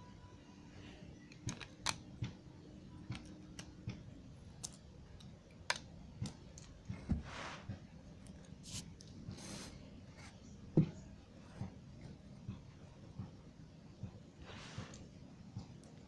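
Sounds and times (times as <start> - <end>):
small plastic clicks: 1.3 - 2.4.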